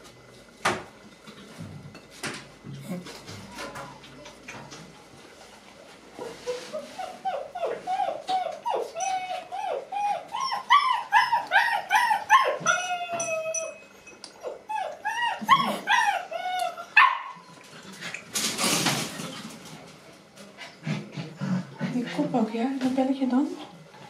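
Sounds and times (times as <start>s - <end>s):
puppy whining and yelping: 6.5s - 17.6s.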